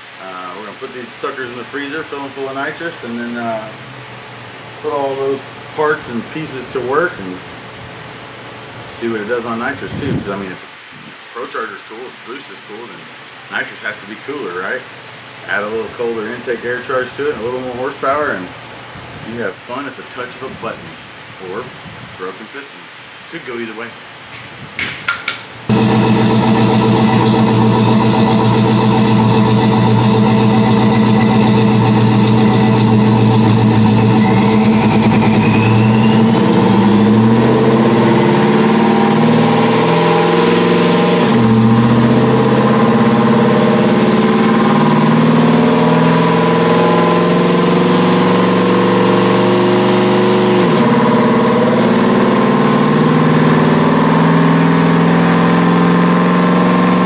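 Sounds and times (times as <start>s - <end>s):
engine revving and shifting: 25.7s - 57.0s.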